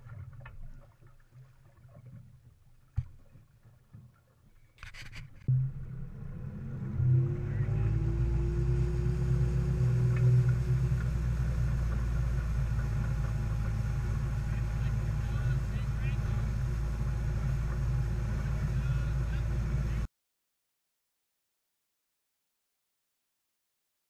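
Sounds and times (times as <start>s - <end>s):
boat engine throttling up: 4.8s - 20.1s.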